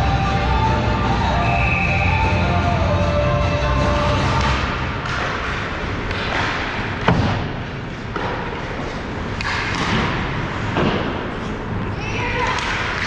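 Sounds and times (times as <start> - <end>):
hockey sticks clattering: 3.7 - 13.0.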